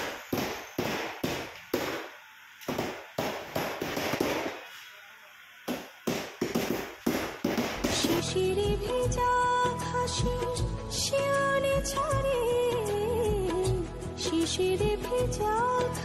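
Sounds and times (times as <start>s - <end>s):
hammer nailing boards: 5.7s - 8.2s.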